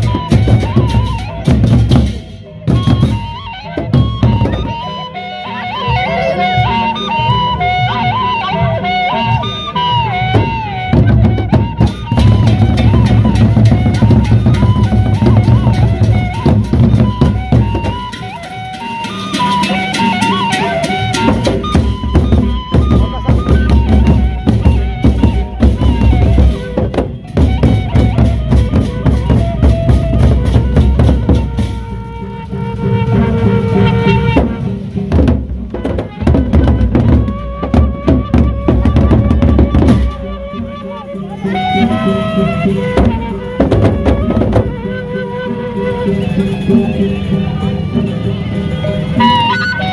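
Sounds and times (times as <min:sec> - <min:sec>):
barrel drums beaten with sticks: 0:00.0 - 0:04.9, 0:10.3 - 0:32.0, 0:34.1 - 0:40.5, 0:42.7 - 0:44.9
pitched melody line: 0:00.0 - 0:35.1, 0:35.8 - 0:49.9
hand cymbals clashing: 0:18.1 - 0:21.7.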